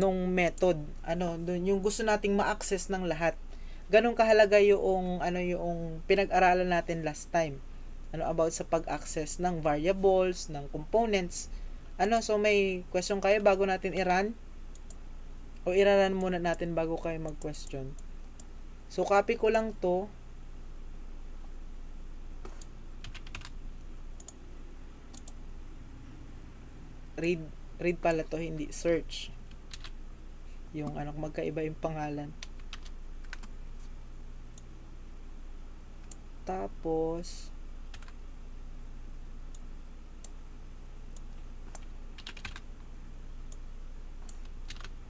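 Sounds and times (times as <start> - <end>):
steady low hum: 0.0 - 45.0
keyboard keystrokes: 22.4 - 23.6, 41.7 - 42.6, 44.2 - 44.9.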